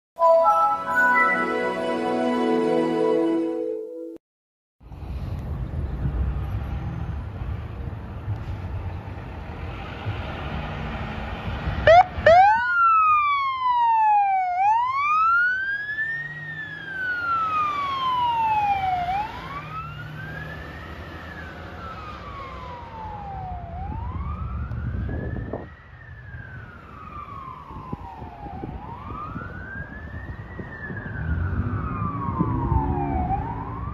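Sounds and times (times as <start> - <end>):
truck engine rumble: 4.8 - 13.0
fire engine siren wailing: 11.3 - 33.9.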